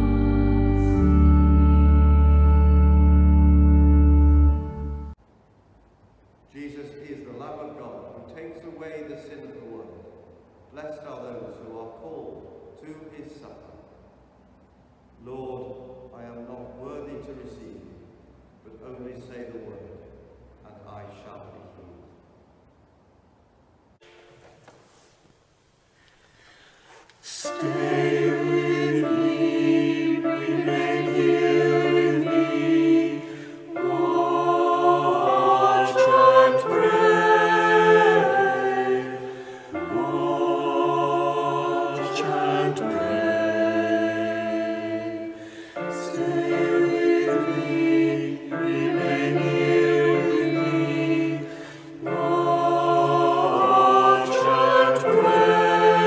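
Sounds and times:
choir singing sacred piece: 0:00.0 - 0:05.2, 0:27.2 - 0:56.0
singers breathing: 0:25.9 - 0:27.3, 0:33.2 - 0:33.7, 0:39.2 - 0:39.8, 0:45.3 - 0:45.9, 0:51.4 - 0:52.0.

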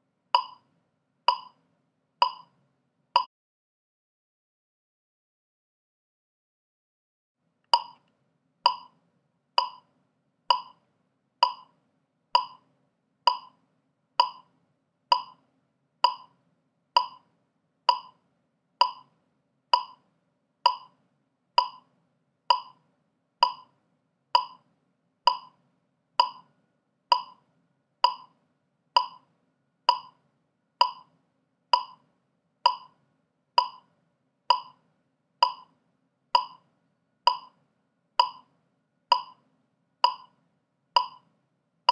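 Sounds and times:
metronome clicking: 0:00.4 - 0:00.6, 0:01.3 - 0:01.6, 0:02.2 - 0:02.5, 0:07.8 - 0:08.1, 0:08.7 - 0:08.9, 0:09.6 - 0:09.8, 0:10.5 - 0:10.8, 0:11.4 - 0:11.7, 0:12.4 - 0:12.6, 0:13.3 - 0:13.5, 0:14.2 - 0:14.4, 0:15.1 - 0:15.4, 0:16.0 - 0:16.3, 0:17.0 - 0:17.2, 0:17.9 - 0:18.2, 0:18.8 - 0:19.1, 0:19.8 - 0:20.0, 0:20.7 - 0:20.9, 0:21.6 - 0:21.8, 0:22.5 - 0:22.8, 0:23.4 - 0:23.7, 0:24.4 - 0:24.6, 0:25.3 - 0:25.5, 0:26.2 - 0:26.5, 0:27.1 - 0:27.4, 0:28.0 - 0:28.3, 0:29.0 - 0:29.2, 0:29.9 - 0:30.2, 0:30.8 - 0:31.1, 0:31.8 - 0:32.0, 0:32.7 - 0:32.9, 0:33.6 - 0:33.8, 0:34.5 - 0:34.8, 0:35.4 - 0:35.7, 0:36.4 - 0:36.6, 0:37.3 - 0:37.6, 0:38.2 - 0:38.5, 0:39.1 - 0:39.4, 0:40.0 - 0:40.3, 0:41.0 - 0:41.3.

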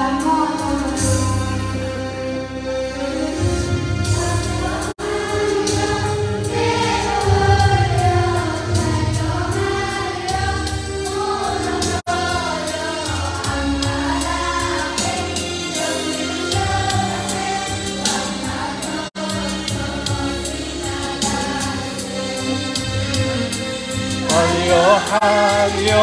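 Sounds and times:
girls choir singing: 0:04.2 - 0:22.6.

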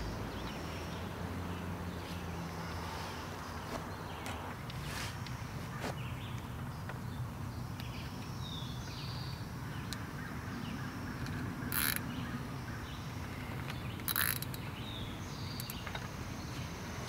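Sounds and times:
birds chirping: 0:00.0 - 0:17.0
zip ties pulled tight: 0:11.7 - 0:12.0, 0:14.1 - 0:14.6.

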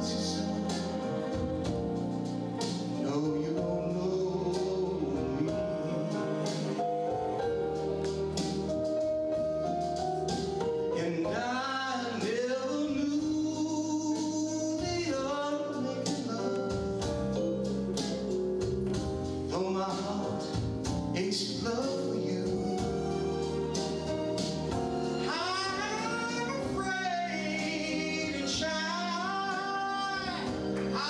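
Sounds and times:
backing music with drum beat: 0:00.0 - 0:31.0
man singing into a microphone: 0:03.0 - 0:06.9, 0:10.9 - 0:16.9, 0:19.4 - 0:23.0, 0:25.2 - 0:31.0.

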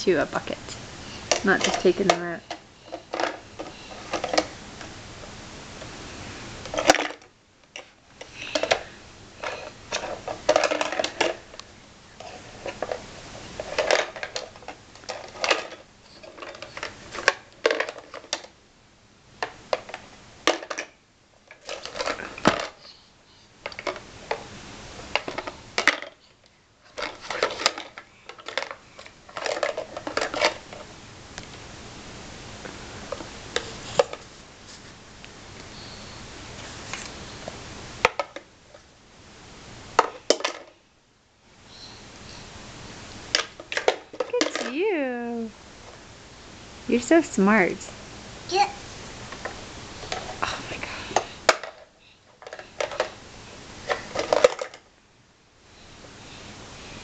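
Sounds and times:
plastic blocks clattering in bucket: 0:09.4 - 0:11.5, 0:13.6 - 0:18.5, 0:26.9 - 0:30.8, 0:53.8 - 0:54.8.

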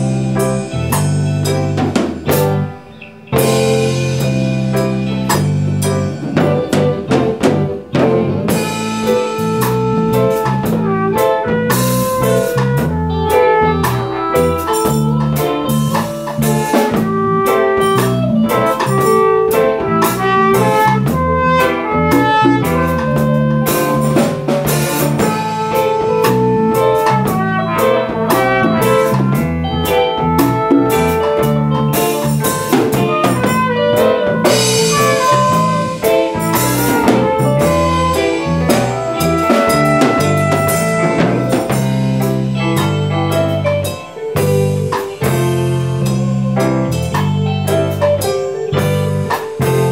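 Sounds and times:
drum kit with cymbals: 0:00.0 - 0:49.9
electric guitar: 0:00.0 - 0:49.9.

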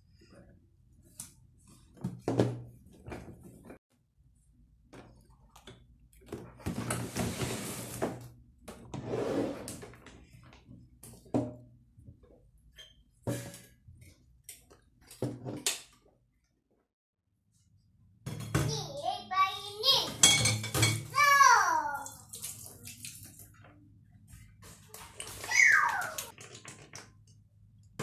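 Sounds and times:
sliding and rustling: 0:06.7 - 0:08.2.

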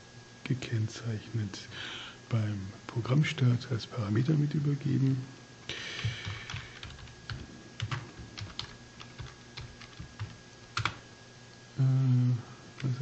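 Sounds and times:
computer keyboard typing: 0:06.0 - 0:11.0.

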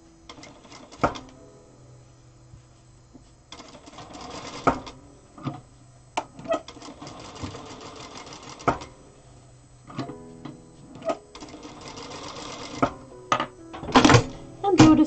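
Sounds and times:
sewing machine stitching: 0:03.5 - 0:05.6, 0:06.4 - 0:08.9, 0:11.0 - 0:13.0.

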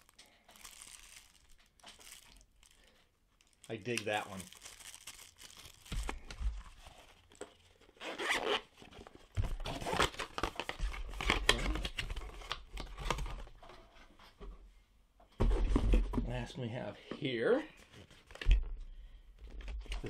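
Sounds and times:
cloth pouch and packaging rustling: 0:00.0 - 0:12.5
zipper pulled open: 0:08.0 - 0:08.7.

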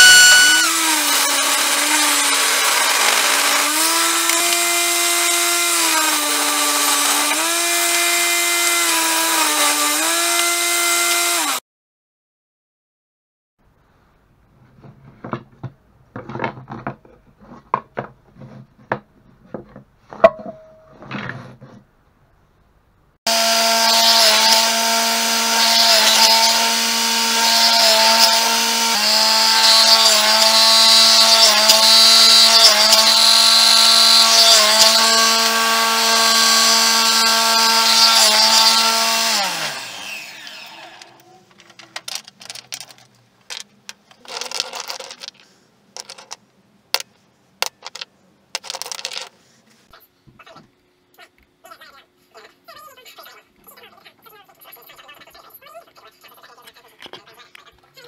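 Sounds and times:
table saw cutting wood: 0:00.0 - 0:11.6, 0:23.3 - 0:41.2.

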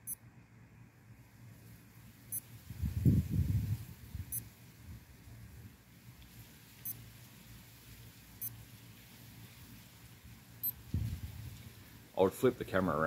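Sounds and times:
wristwatch high-pitched beeps: 0:02.3 - 0:02.5, 0:08.4 - 0:08.6.

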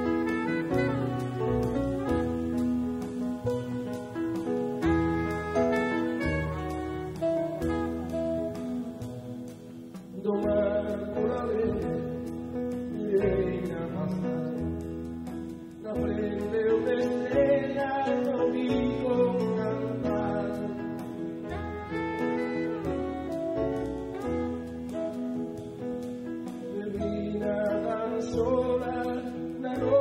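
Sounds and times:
bass: 0:00.0 - 0:30.0
plucked string instrument: 0:00.0 - 0:30.0
man singing: 0:10.0 - 0:15.0, 0:15.7 - 0:25.4, 0:26.5 - 0:30.0.

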